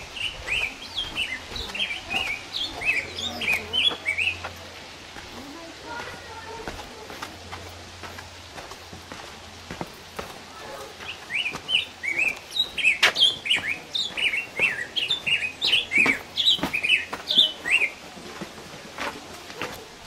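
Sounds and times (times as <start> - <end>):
footsteps on trail: 0.0 - 20.0
small bird chirping: 10.8 - 18.0.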